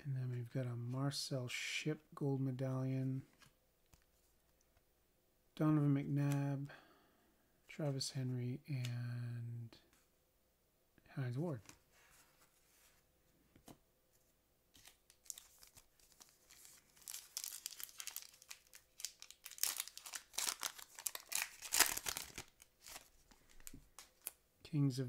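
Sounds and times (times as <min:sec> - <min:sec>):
foil wrapper tearing and crinkling: 0:14.8 - 0:24.3.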